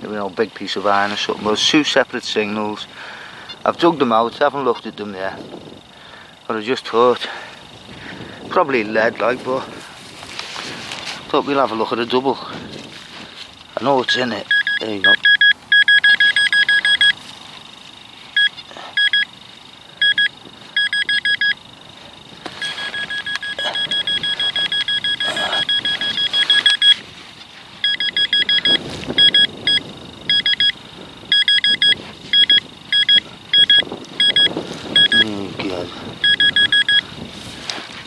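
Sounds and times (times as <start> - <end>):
metal detector pinpointer beeping: 13.8 - 17.2, 18.3 - 19.4, 20.0 - 21.7, 22.4 - 27.0, 27.8 - 35.4, 36.2 - 37.1.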